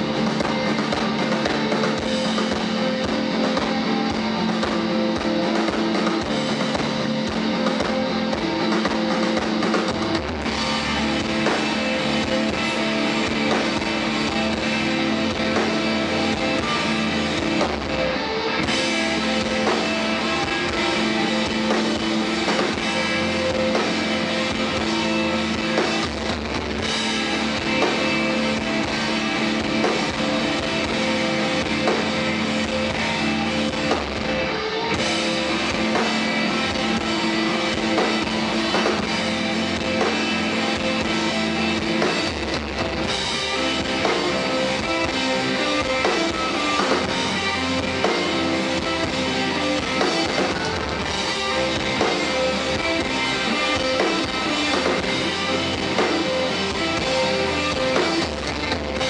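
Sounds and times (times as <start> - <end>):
drum kit: 0.0 - 59.0
electric guitars: 0.0 - 59.0.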